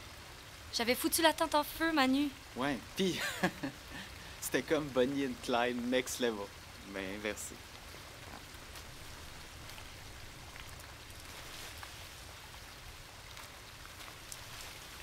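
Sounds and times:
soft outdoor hiss: 0.0s - 15.0s
faint light ticks and crackles: 3.4s - 15.0s.

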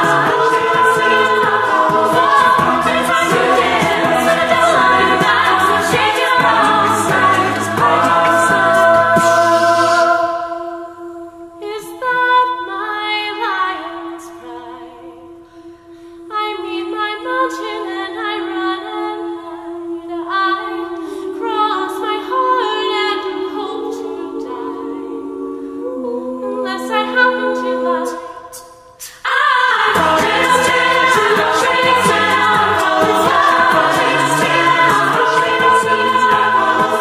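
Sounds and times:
a cappella group singing: 0.0s - 37.0s.

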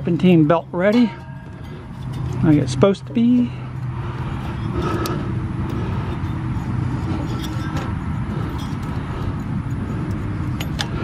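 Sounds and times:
low mechanical hum: 0.0s - 11.0s
wrench clicking on metal: 9.7s - 11.0s.

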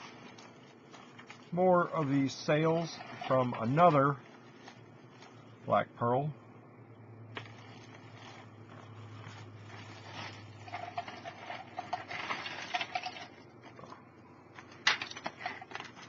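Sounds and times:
plastic bag rustling: 0.0s - 5.7s, 7.4s - 13.8s, 14.5s - 16.0s.

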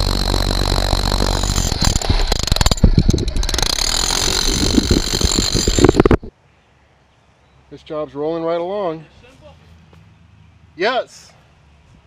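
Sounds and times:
power tool motor whining: 0.0s - 6.3s.

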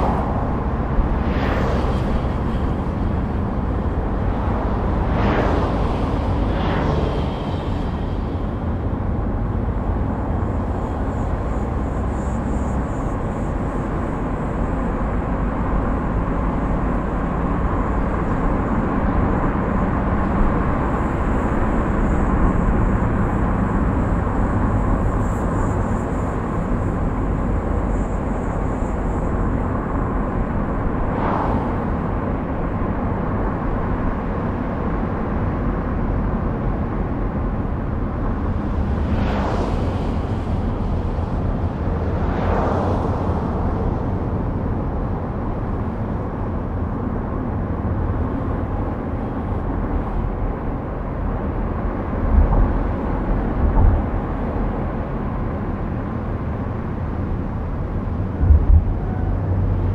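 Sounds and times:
car tyre and engine rumble: 0.0s - 59.9s.

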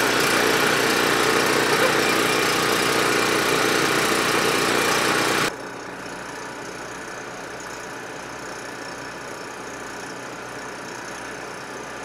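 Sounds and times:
generator running: 0.0s - 6.9s.

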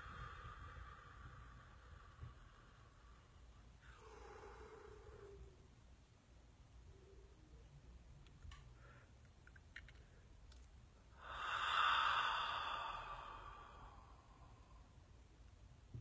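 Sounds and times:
woman exhaling deeply: 0.0s - 5.3s, 11.2s - 15.0s
faint clicks: 8.2s - 10.8s.

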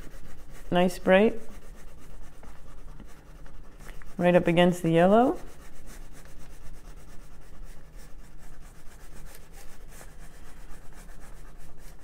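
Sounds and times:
wax crayon rubbing on paper: 0.0s - 12.0s.

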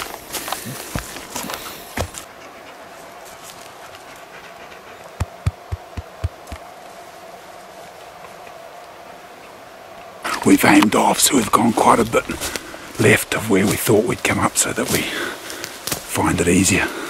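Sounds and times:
soft low thumps: 5.2s - 6.6s
footsteps on dry leaves: 11.5s - 17.0s.

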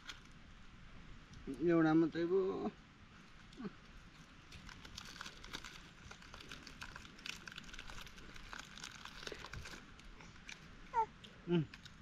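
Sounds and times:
plastic snack packet crinkling: 4.5s - 10.7s.

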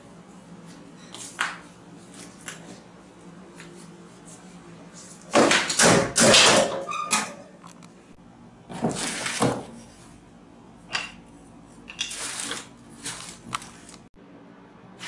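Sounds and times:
rummaging papers and bags: 12.0s - 14.1s.

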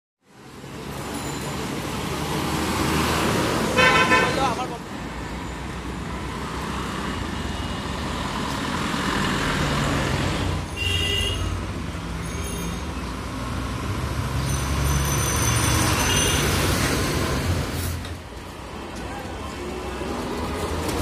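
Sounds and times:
auto-rickshaw engine passing: 11.5s - 21.0s.

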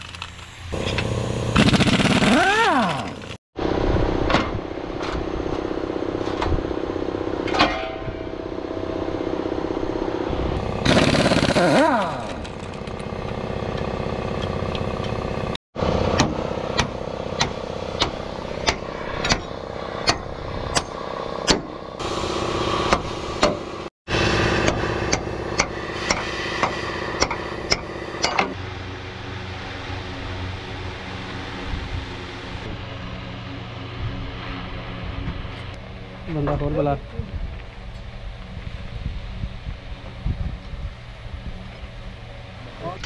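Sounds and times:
pneumatic impact wrench hammering: 0.7s - 3.4s, 10.8s - 13.1s, 16.1s - 23.7s, 24.4s - 28.6s.

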